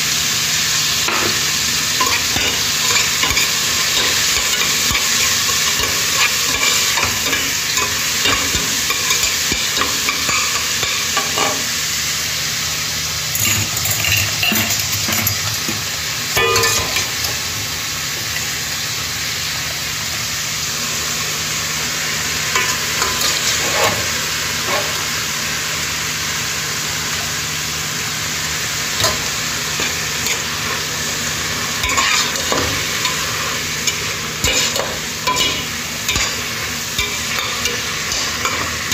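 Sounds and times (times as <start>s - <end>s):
food sizzling in a pan: 0.0s - 38.9s
utensil scraping a pan: 22.6s - 24.1s, 31.8s - 38.9s.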